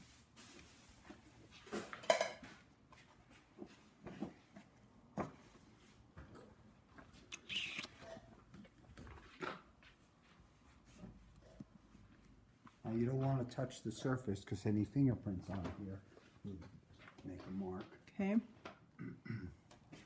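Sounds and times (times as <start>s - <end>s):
felt blankets being folded: 0.0s - 1.8s.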